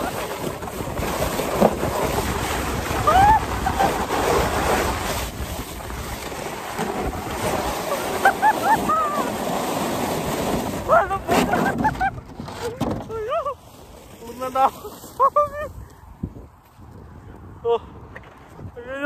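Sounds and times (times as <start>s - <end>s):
wind on microphone: 0.0s - 13.2s, 15.2s - 19.0s
person crying out: 3.0s - 4.0s, 8.4s - 9.3s, 10.9s - 11.6s, 13.1s - 13.6s.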